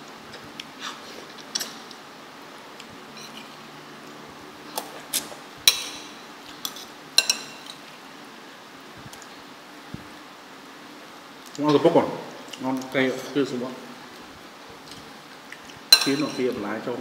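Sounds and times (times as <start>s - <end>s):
cutlery clinking on a plate: 15.9s - 16.6s.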